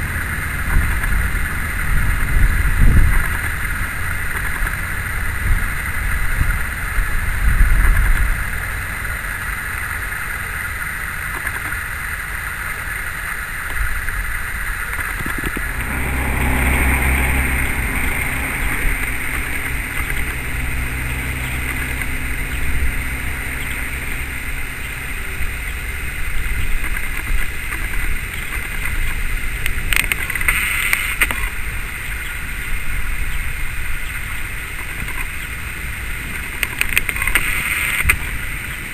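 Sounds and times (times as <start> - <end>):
diesel locomotive engine running: 0.0 - 10.4, 15.0 - 28.6.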